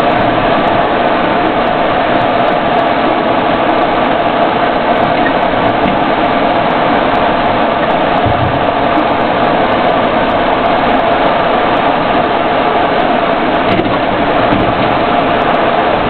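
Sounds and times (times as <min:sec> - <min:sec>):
vehicle engine and road rumble: 0:00.0 - 0:16.0.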